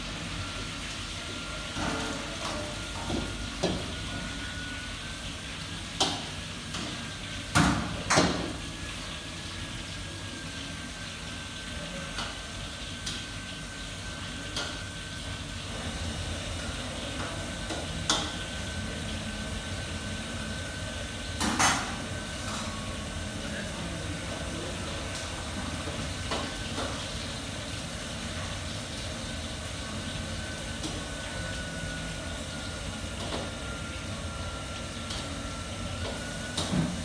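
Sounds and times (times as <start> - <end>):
pots and pans clanking: 21.3 - 22.9, 36.0 - 37.0.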